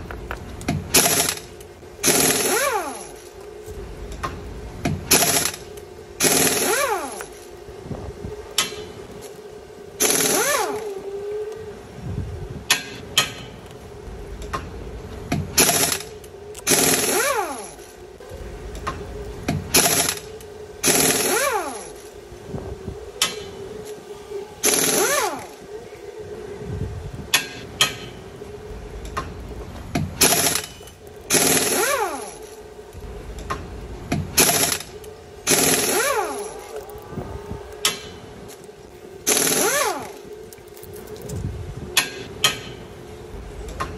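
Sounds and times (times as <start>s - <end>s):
steady hum: 0.0s - 43.9s
rough rushing noise: 31.3s - 40.2s.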